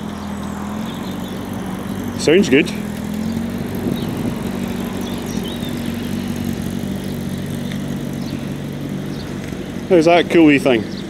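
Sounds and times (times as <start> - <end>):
petrol engine droning: 0.0 - 11.0.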